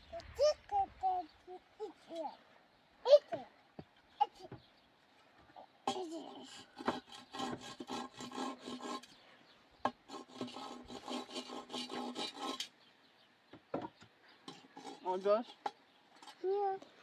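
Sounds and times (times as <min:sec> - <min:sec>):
light knocks of wood: 0:03.3 - 0:04.7, 0:13.5 - 0:14.2
hand tool rasping on wood: 0:05.9 - 0:12.8, 0:14.5 - 0:15.6.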